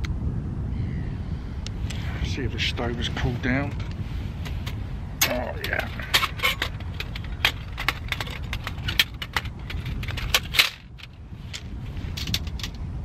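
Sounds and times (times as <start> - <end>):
steady low rumble: 0.0 - 13.0
metal panels clinking together: 4.5 - 11.2.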